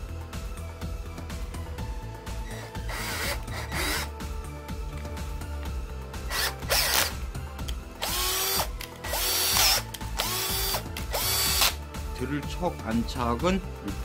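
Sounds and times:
cordless drill motor whining: 2.4 - 4.1, 6.3 - 7.2, 8.0 - 11.8.

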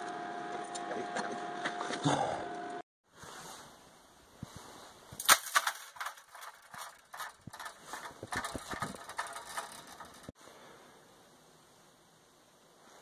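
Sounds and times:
copper tubing clicking and rattling: 5.2 - 10.4.

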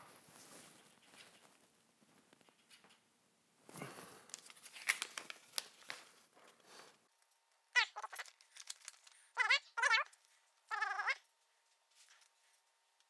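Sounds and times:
paper booklet crinkling: 4.1 - 12.8.

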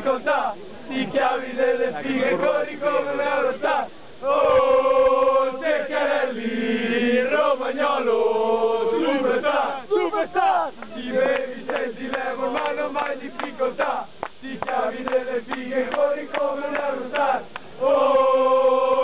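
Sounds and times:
young men chanting: 0.0 - 19.0
handclaps: 10.8 - 13.6, 14.2 - 17.7.

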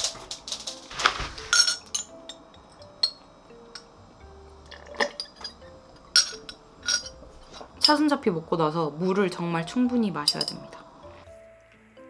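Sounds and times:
soft background music: 0.0 - 12.0
glass and metal straw clinking: 1.4 - 3.9, 4.6 - 8.2, 10.2 - 10.8.

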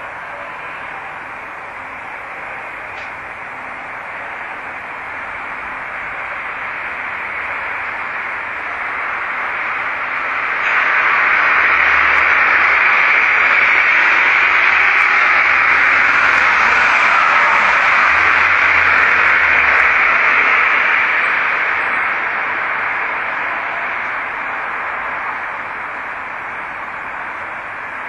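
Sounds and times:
steady hissing noise: 0.0 - 28.0.

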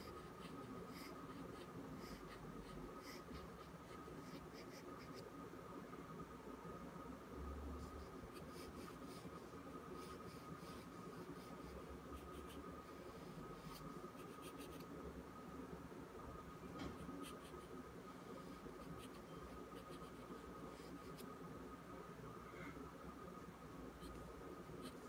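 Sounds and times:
pencil scratching on paper: 0.0 - 5.3, 13.6 - 14.9, 18.6 - 21.3
thin background whine: 0.0 - 25.0.

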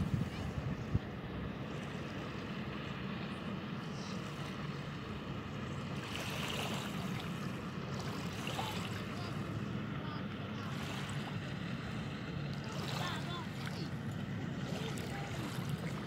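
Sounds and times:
wind on microphone: 0.0 - 1.2
distant ship engine: 0.0 - 16.0
small waves lapping: 0.0 - 16.0.

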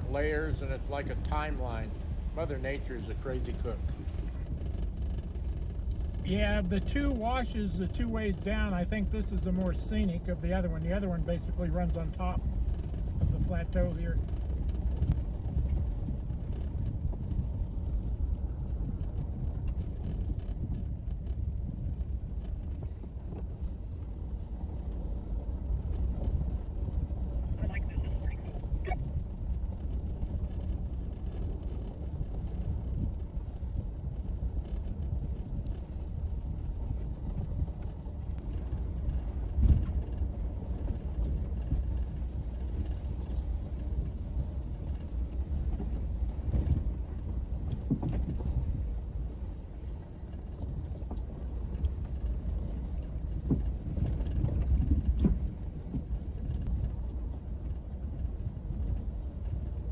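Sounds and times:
off-road vehicle engine and tyres rumbling: 0.0 - 59.9.

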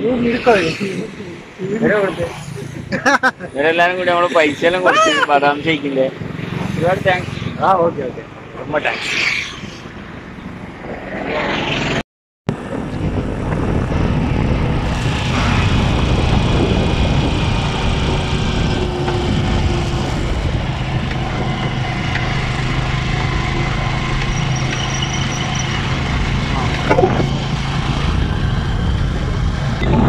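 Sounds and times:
motorcycle engine cruising: 0.0 - 8.4, 12.6 - 30.0
wind noise on microphone: 11.9 - 24.8, 25.4 - 30.0.

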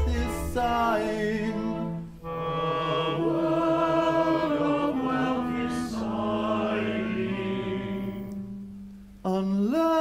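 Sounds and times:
tenor voice singing with vibrato: 0.0 - 8.4.

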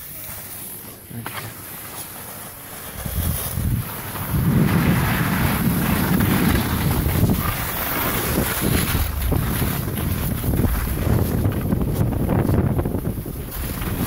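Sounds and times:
skis hissing over packed snow: 0.0 - 14.0
wind buffeting microphone: 3.0 - 14.0.

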